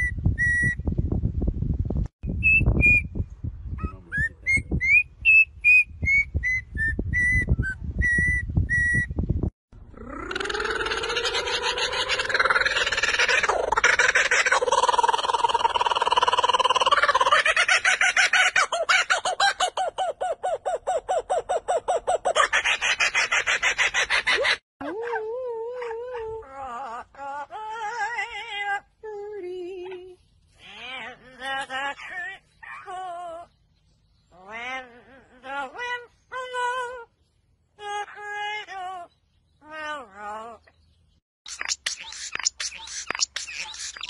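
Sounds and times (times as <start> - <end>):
kookaburra laughing: 10.0 - 24.6, 41.5 - 44.0
parrot singing with vibrato: 41.5 - 44.0.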